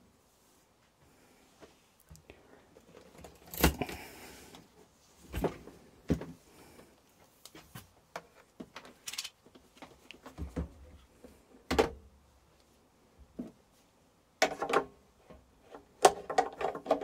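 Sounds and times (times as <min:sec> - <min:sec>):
hands handling parts on bench: 0:07.2 - 0:11.4.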